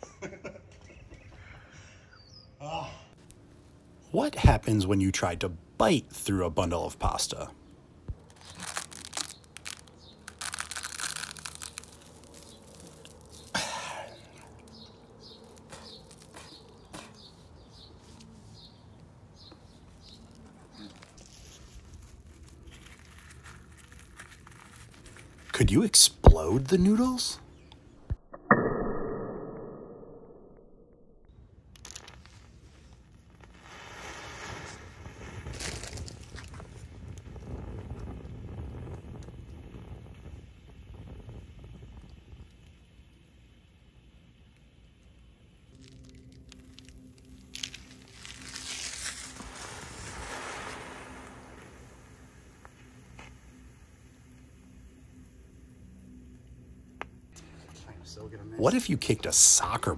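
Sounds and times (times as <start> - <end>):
sharp crack: 8.0 - 17.3
pyrotechnic charge fizzing and crackling: 8.1 - 17.4, 31.7 - 56.6
spaghetti snapping: 8.1 - 17.4, 20.0 - 25.6, 45.7 - 49.7
dry spaghetti crunching: 8.2 - 17.9, 19.9 - 25.6, 45.7 - 50.2
wind rumble on microphone: 35.4 - 42.6.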